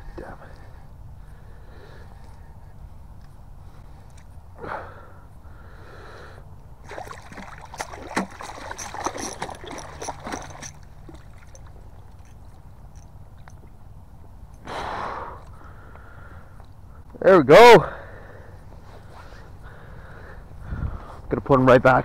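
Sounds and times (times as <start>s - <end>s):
fish splashing in water: 6.8s - 12.6s.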